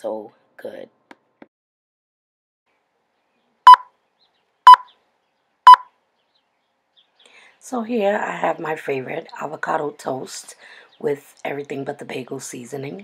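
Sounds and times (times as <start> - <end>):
short electronic beeps: 3.7 - 3.9, 4.7 - 4.9, 5.7 - 5.9.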